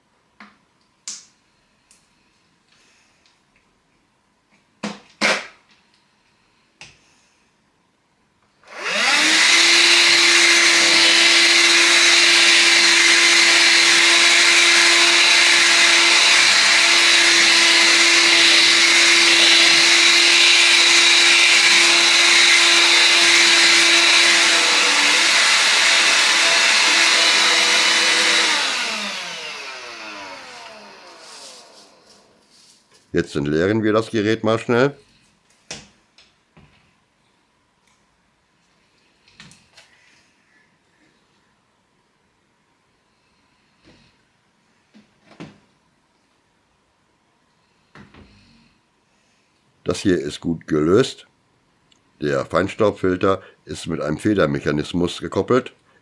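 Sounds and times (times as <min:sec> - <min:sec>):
handheld vacuum cleaner whine: 0:08.6 - 0:32.4.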